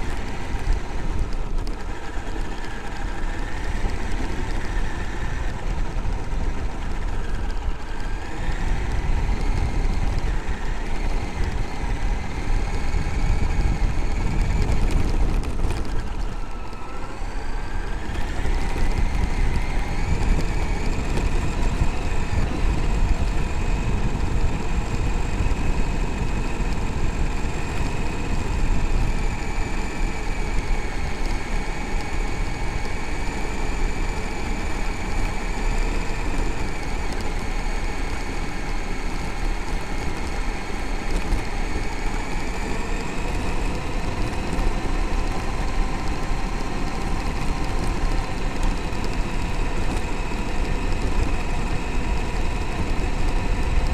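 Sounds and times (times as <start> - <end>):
electric motor whining: 0.0 - 53.9
gravel rumbling under tyres: 0.0 - 53.9.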